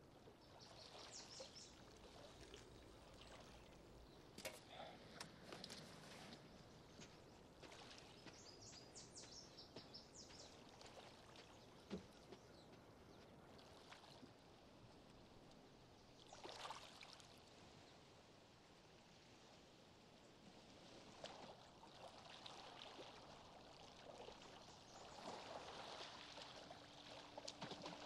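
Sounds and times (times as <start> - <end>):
soft rustle: 1.7 - 9.3.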